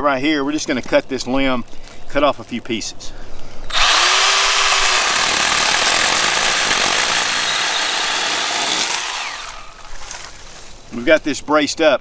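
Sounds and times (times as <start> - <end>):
mini chainsaw cutting wood: 3.7 - 10.5.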